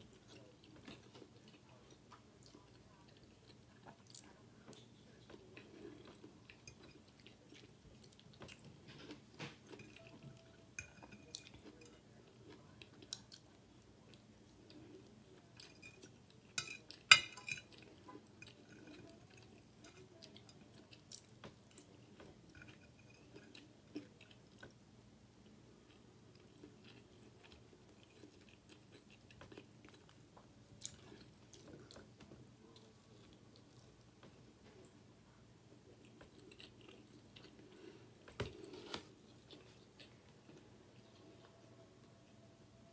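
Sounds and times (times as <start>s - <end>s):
chewing food: 0.0s - 35.0s, 35.7s - 42.4s
fork clinking on a plate: 16.6s - 17.8s.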